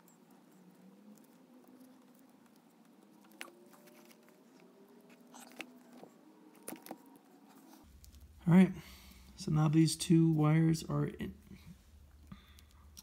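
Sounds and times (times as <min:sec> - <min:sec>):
tape crackling off roll: 0:03.1 - 0:08.2.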